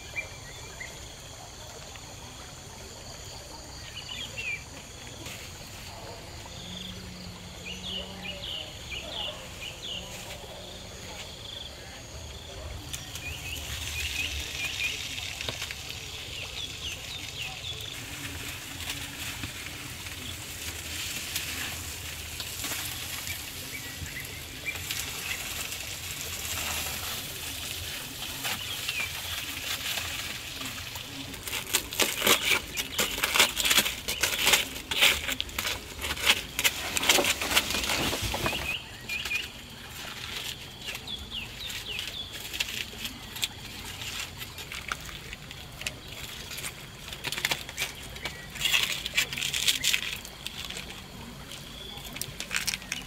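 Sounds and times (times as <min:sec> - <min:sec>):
insects chirping: 0:00.0 - 0:53.0
foil crinkling: 0:12.5 - 0:53.0.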